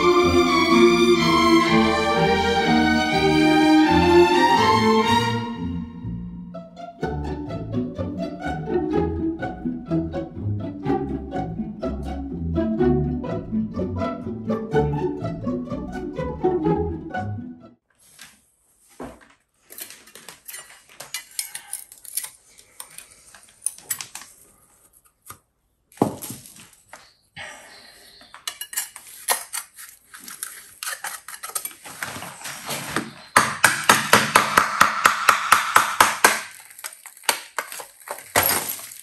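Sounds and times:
hammer striking chisel on tiles: 33.3 - 36.5.

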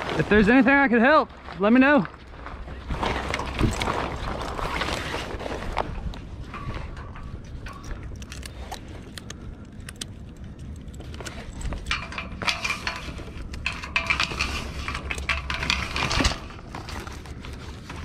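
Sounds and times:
metal rigging fittings clinking: 6.3 - 18.0.

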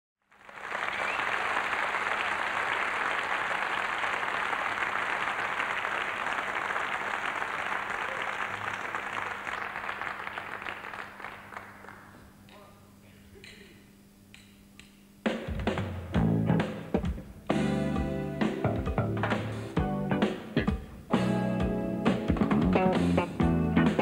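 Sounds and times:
audience applauding: 0.3 - 12.4.

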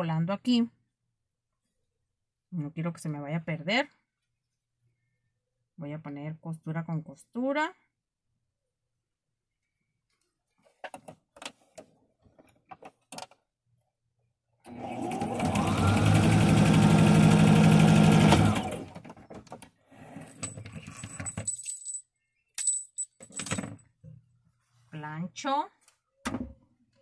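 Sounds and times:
sewing machine stitching: 14.7 - 19.0.

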